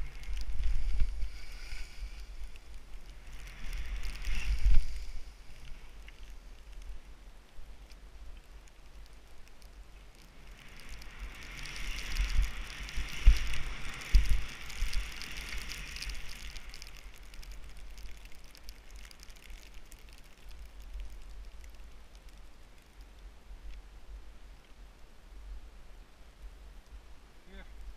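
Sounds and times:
skis hissing over snow: 0.0s - 6.5s, 10.3s - 17.6s.

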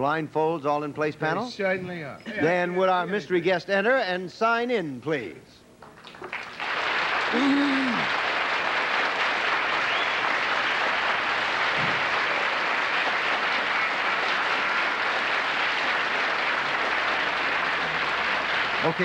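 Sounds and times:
audience applauding: 5.9s - 19.0s.

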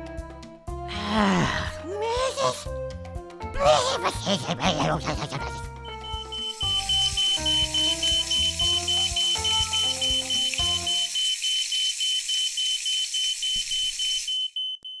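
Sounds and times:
music: 0.0s - 11.1s
smoke alarm beeping: 5.8s - 15.0s
steady hiss: 6.1s - 14.3s.

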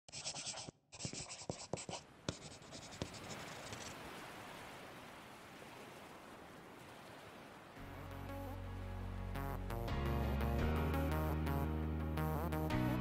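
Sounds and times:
pen scratching on paper: 0.1s - 4.0s.

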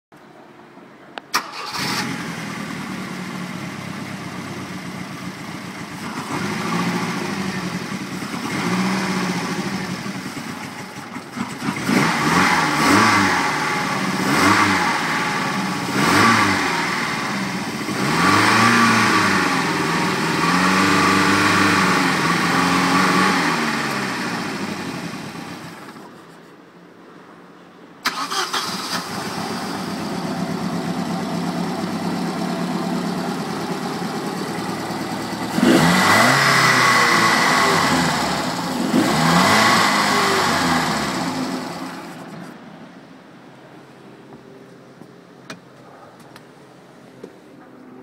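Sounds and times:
boat engine idling and revving: 1.8s - 26.3s, 29.1s - 42.6s.

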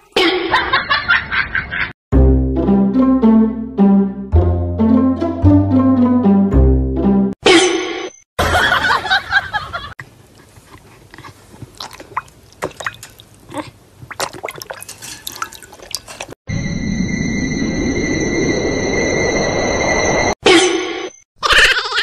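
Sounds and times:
water splashing in a plastic bowl: 11.7s - 13.4s, 14.0s - 16.3s.

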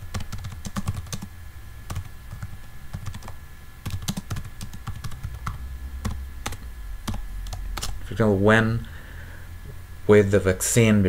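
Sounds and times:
typing on computer keyboard: 0.1s - 1.3s, 1.9s - 8.0s.

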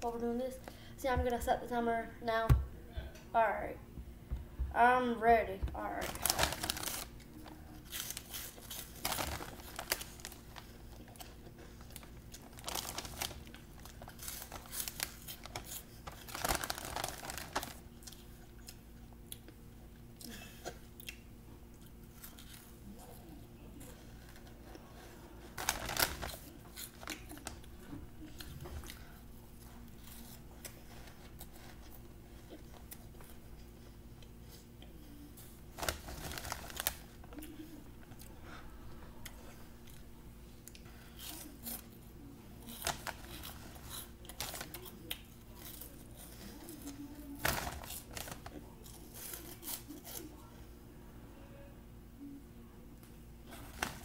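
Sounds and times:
faint steady hum: 0.0s - 54.0s
cheese puffs crunching: 5.9s - 19.6s, 21.8s - 33.4s, 35.4s - 38.3s, 42.6s - 50.5s
snack bag crinkling: 6.0s - 18.8s, 25.4s - 27.7s, 35.7s - 37.5s, 42.6s - 50.4s.

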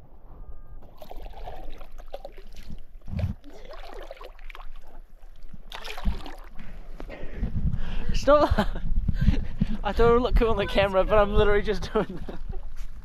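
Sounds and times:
paddle splashing through water: 0.8s - 6.7s.

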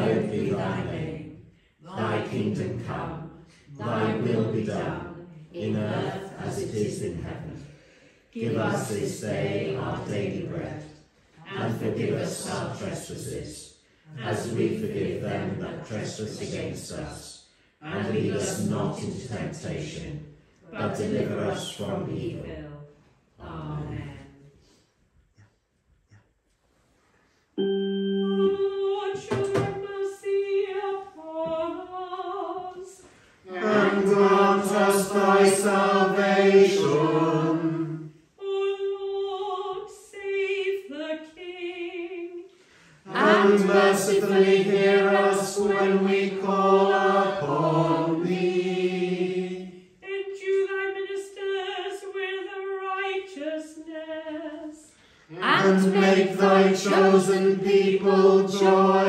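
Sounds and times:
congregation chanting in unison: 0.0s - 22.5s, 32.8s - 38.3s, 42.7s - 50.1s, 55.3s - 59.0s
woman chanting: 50.1s - 57.0s.

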